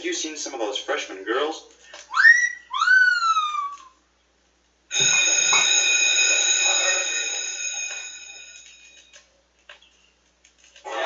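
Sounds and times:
bell-like ringing: 0:04.9 - 0:09.2.

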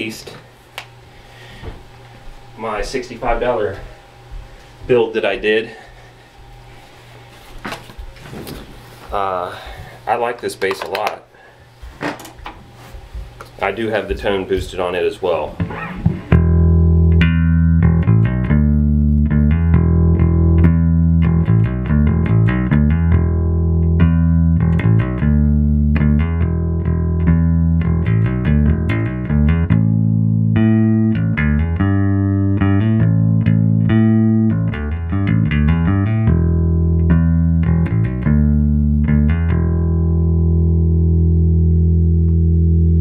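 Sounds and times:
electric bass guitar riff: 0:15.4 - 0:43.0.

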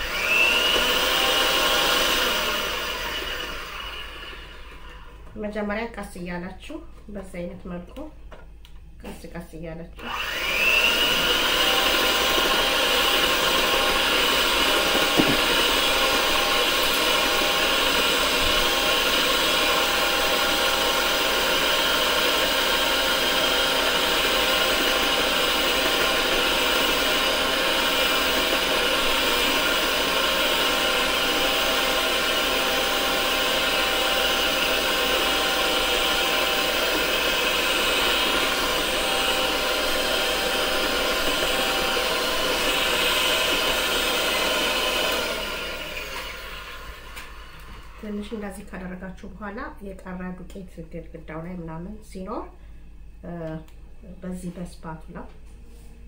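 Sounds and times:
electric hand mixer whisking batter: 0:00.0 - 0:05.2, 0:10.0 - 0:48.3.

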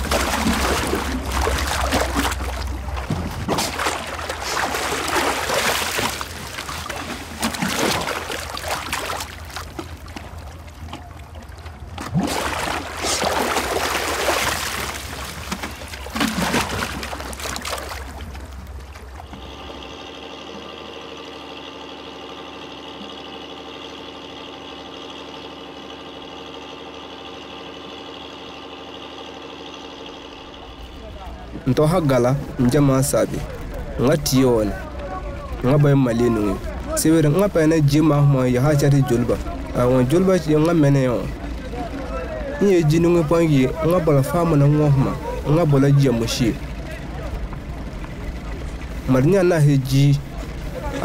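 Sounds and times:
wet sand and water splashing: 0:00.0 - 0:19.4
low hum: 0:00.0 - 0:51.0
drone of held tones: 0:19.1 - 0:31.1.

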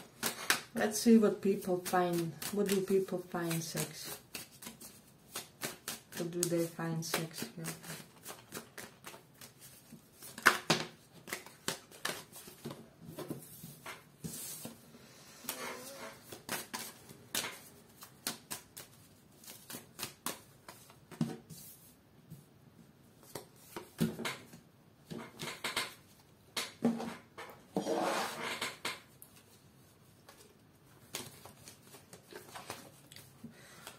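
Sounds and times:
cards being shuffled: 0:00.0 - 0:14.8, 0:15.5 - 0:21.8, 0:29.3 - 0:33.9.

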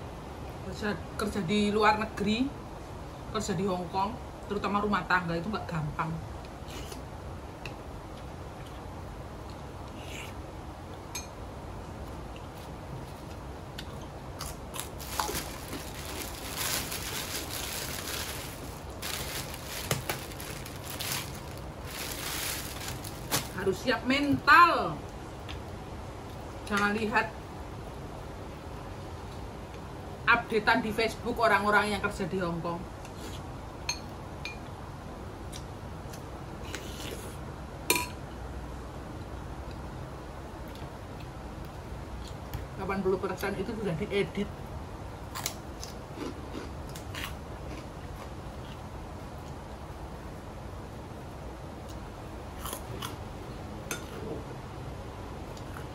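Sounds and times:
chewing and crunching food: 0:11.9 - 0:23.6, 0:45.3 - 0:49.6, 0:51.8 - 0:53.2.

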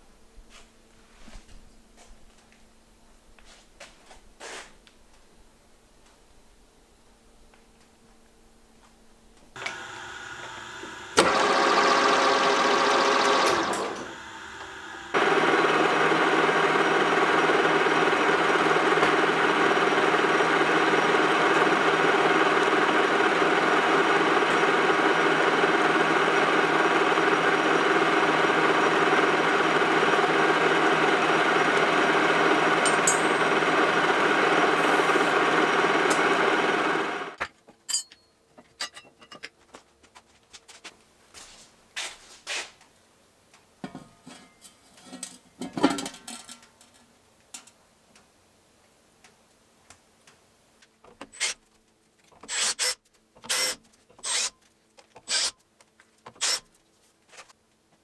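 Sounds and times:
metal lathe humming: 0:09.6 - 0:37.4.

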